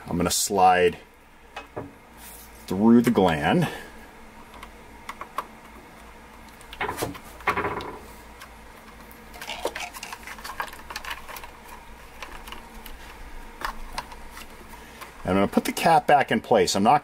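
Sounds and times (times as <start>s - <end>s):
wires rubbing against plastic: 8.1s - 16.0s.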